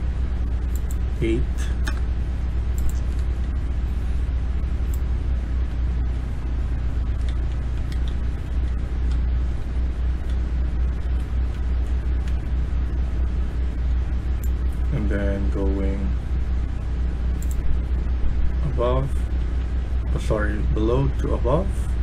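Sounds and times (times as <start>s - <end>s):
low hum and rumbling: 0.0s - 22.0s.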